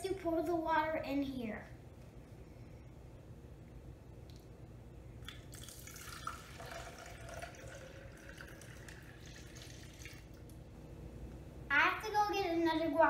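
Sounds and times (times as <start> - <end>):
water splashing and trickling: 5.5 - 10.4.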